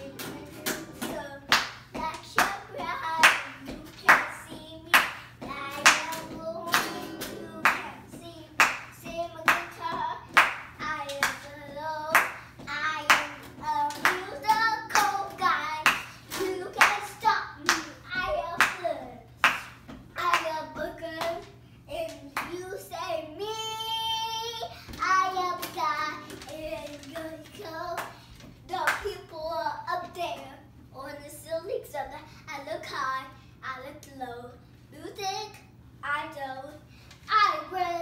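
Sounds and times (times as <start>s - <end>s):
hands clapping a beat: 0.0s - 22.6s, 28.8s - 29.2s
young child singing: 0.0s - 38.0s.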